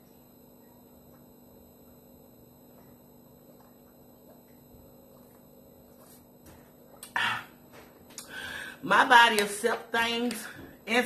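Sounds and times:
faint room hum: 0.0s - 11.0s
person swallowing: 6.9s - 7.6s.

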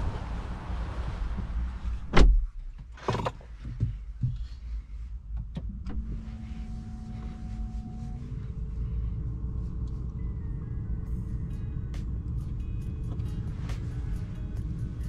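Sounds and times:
car door shutting: 2.0s - 3.3s, 5.5s - 6.3s
clicks and knocks in car cabin: 2.1s - 4.6s, 5.3s - 6.0s
steady humming tones: 6.0s - 11.7s.

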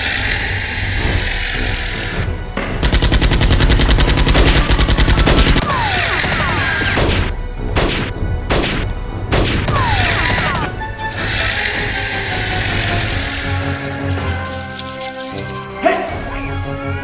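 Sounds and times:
automatic gunfire burst: 2.8s - 7.2s
single gunshots: 4.1s - 10.6s.

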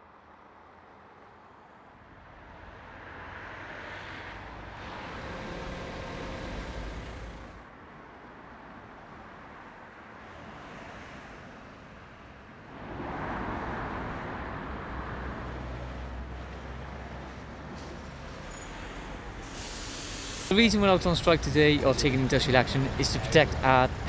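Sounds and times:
road traffic hum: 1.9s - 24.0s
vehicle passing by: 3.4s - 7.6s.

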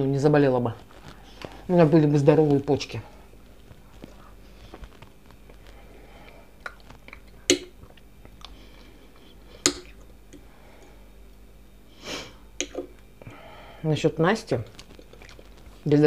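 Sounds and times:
soft chewing: 3.1s - 11.0s, 14.6s - 15.8s.

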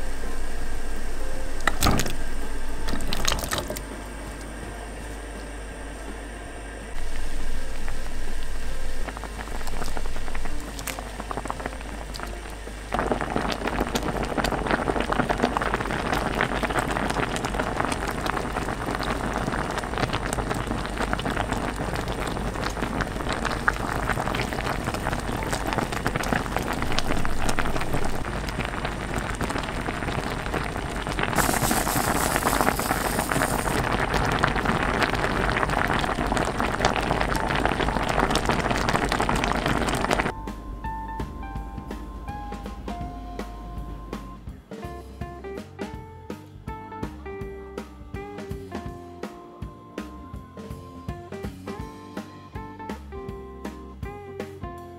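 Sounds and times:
sauce bubbling in a pot: 0.0s - 3.8s, 7.0s - 40.4s
bright hiss: 7.0s - 40.3s.

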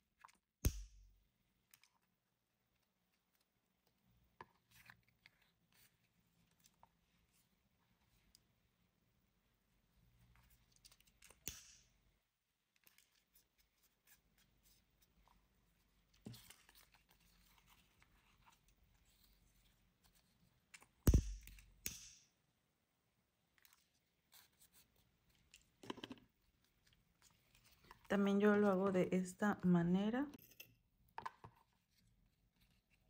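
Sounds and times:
ribbon rustling: 12.8s - 21.8s.

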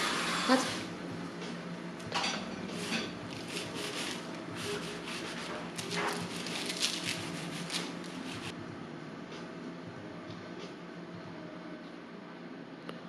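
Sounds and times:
knife cutting crisp pastry: 2.8s - 8.5s.

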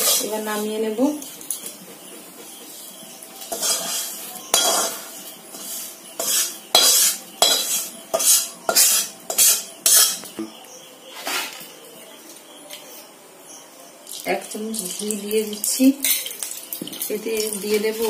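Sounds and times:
metal spatula scraping metal pan: 0.0s - 0.6s, 3.4s - 10.3s
gritty rasp of dry grains: 3.6s - 4.2s, 4.8s - 10.2s.

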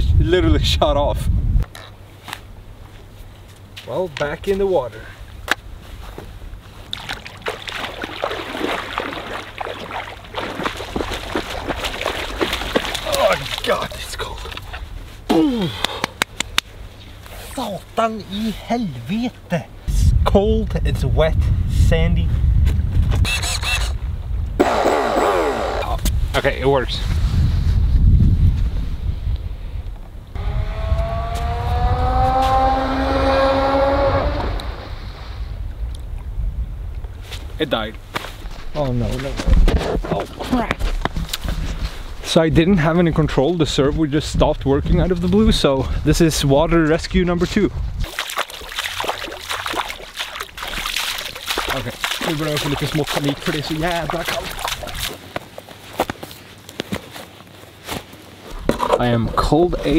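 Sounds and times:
wind rumble on microphone: 0.0s - 1.8s, 19.8s - 48.1s
shallow water splashing: 6.8s - 15.0s, 48.0s - 55.3s.

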